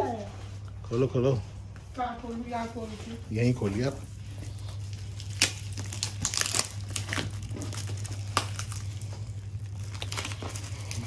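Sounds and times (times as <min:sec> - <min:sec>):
wrapping paper crinkling: 0:03.3 - 0:11.0.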